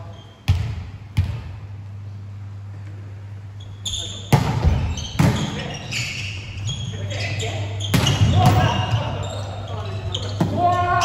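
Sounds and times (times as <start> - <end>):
steady low hum: 0.0 - 11.0
players shouting: 8.2 - 11.0.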